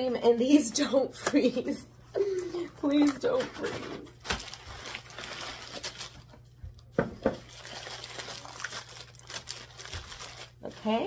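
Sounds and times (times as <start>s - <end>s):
plastic wrappers crinkling: 2.2s - 11.0s.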